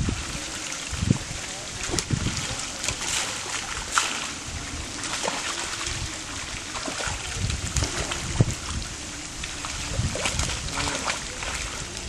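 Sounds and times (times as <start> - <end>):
bowls scooping water: 0.0 - 12.0
fish thrashing in water: 0.0 - 12.0
sharp slap of water: 1.8 - 4.4.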